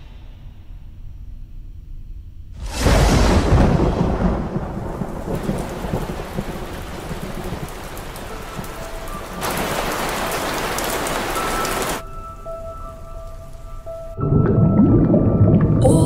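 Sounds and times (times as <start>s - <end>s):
thunder rumble: 2.5s - 12.1s, 14.0s - 16.0s
steady rain: 2.6s - 14.1s.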